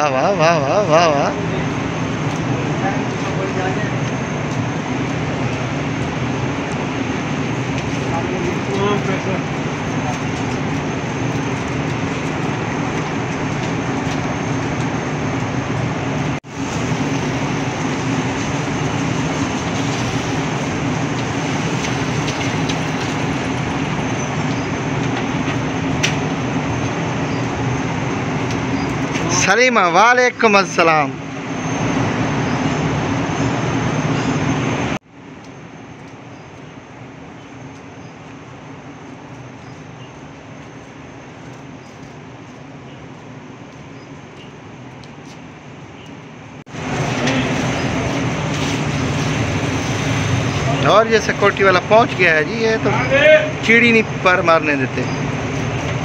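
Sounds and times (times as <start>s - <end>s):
low engine drone: 0.0s - 29.4s, 31.1s - 56.0s
rain on wet pavement: 16.4s - 26.9s.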